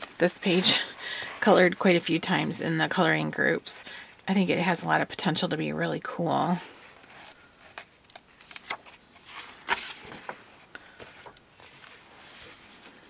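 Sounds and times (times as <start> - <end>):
paper pages rustling: 0.0 - 0.7, 6.8 - 13.0.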